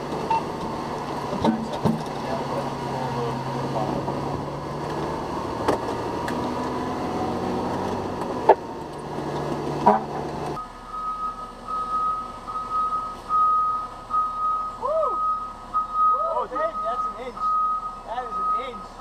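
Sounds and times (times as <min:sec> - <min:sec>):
fire engine humming: 0:00.0 - 0:19.0
reversing alarm beeping: 0:10.6 - 0:19.0.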